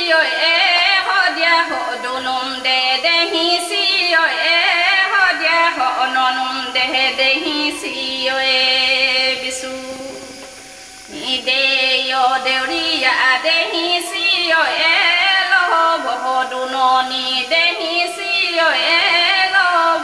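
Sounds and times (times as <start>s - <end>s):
woman singing folk melody: 0.0s - 20.0s.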